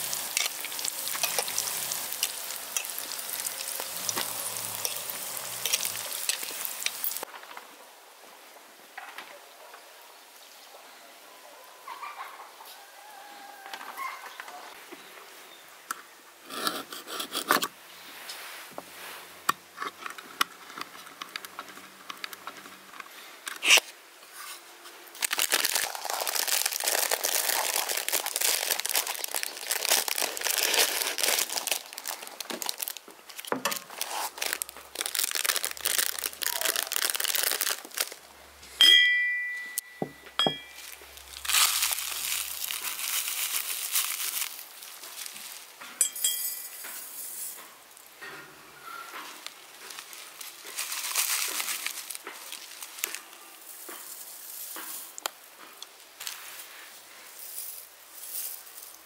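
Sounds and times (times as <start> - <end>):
crinkly packet rustling: 0.0 - 7.3, 25.1 - 38.3, 40.7 - 45.8, 49.3 - 55.4, 56.2 - 56.7
china clinking: 0.3 - 7.2, 38.8 - 42.5, 46.0 - 47.2.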